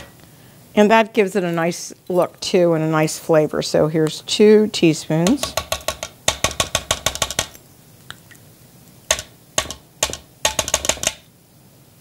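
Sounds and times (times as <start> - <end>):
metal spoons tapping glass dish: 9.1 - 11.2.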